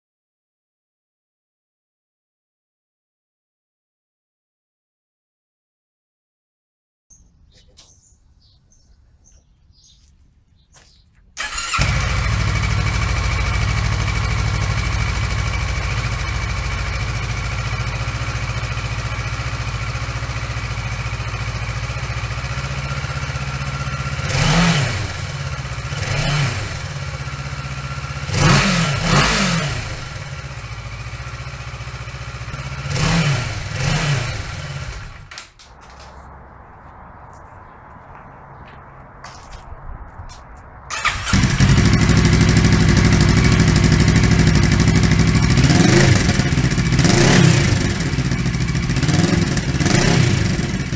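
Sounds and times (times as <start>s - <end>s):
motorcycle engine idling and revving: 11.4s - 36.3s, 40.9s - 50.9s.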